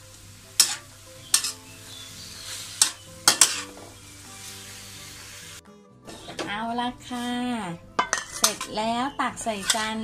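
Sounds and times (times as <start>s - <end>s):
light sizzle: 0.0s - 5.6s
metal spatula scraping wok: 0.6s - 5.3s, 6.0s - 10.0s.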